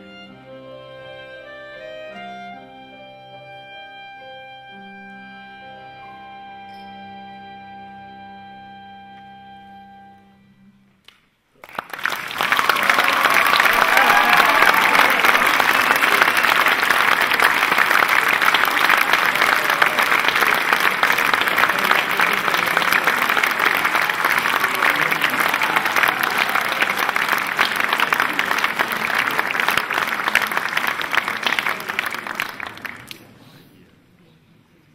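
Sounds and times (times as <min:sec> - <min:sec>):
audience applauding: 0:11.6 - 0:33.4.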